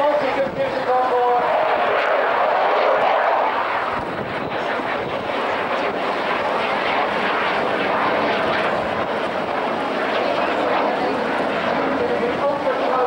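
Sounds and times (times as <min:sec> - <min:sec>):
rushing jet engine noise: 0:00.0 - 0:13.0.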